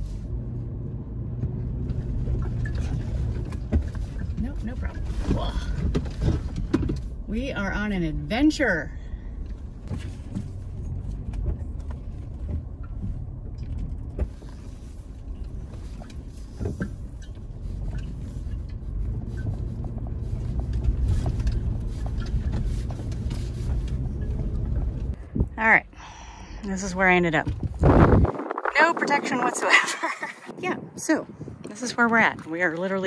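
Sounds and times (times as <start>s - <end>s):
engine and tyres rumbling: 0.0s - 33.0s
truck knocks and clicks: 1.4s - 7.2s, 9.4s - 25.2s.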